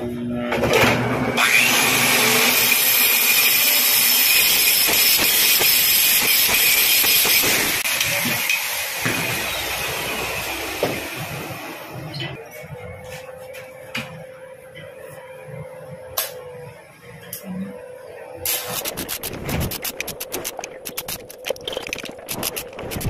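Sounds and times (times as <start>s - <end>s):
angle grinder grinding metal: 1.4s - 10.4s.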